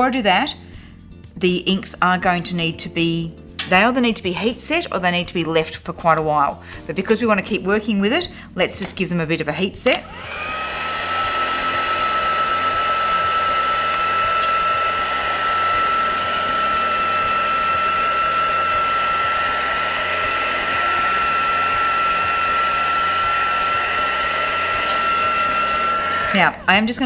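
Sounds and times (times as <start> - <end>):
heat gun fan whining: 9.9 - 26.7
rush of hot air: 10.1 - 26.4.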